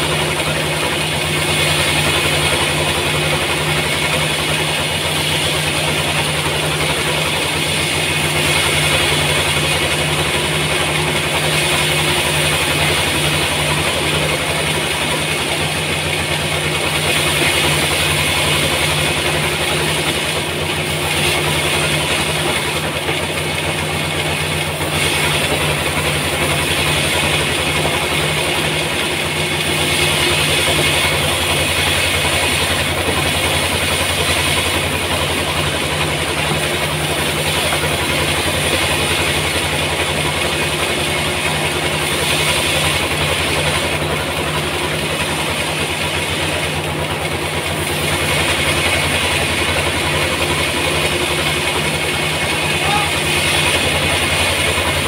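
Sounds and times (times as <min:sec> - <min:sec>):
band sawmill cutting log: 0:00.0 - 0:55.0.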